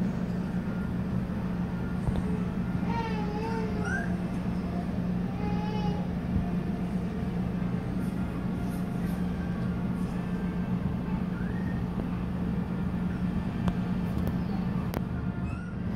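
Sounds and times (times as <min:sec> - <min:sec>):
low hum and rumble: 0:00.0 - 0:15.9
puppy squeaking: 0:03.8 - 0:04.1, 0:15.4 - 0:15.8.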